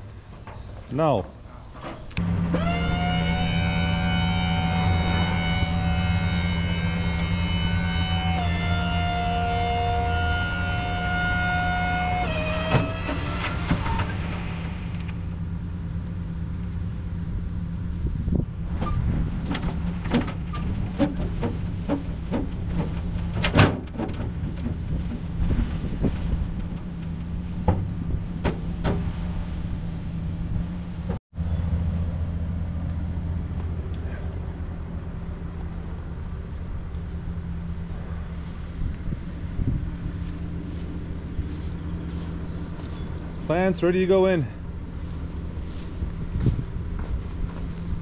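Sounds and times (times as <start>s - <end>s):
dump truck engine running: 1.9s - 48.0s
knocks and clatters: 18.8s - 29.1s.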